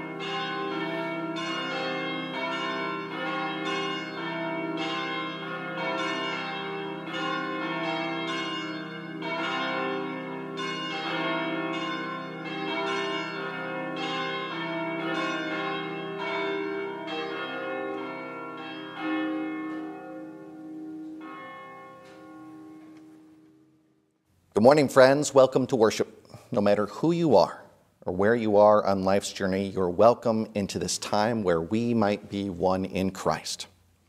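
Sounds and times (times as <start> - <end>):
church bells ringing: 0.0 - 24.8.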